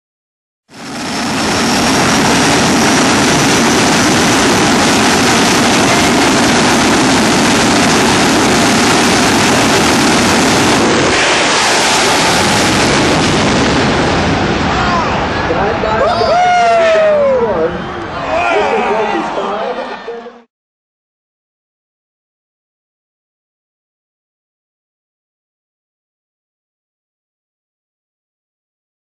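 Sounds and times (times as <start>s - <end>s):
turbine engines roaring: 0.7s - 20.5s.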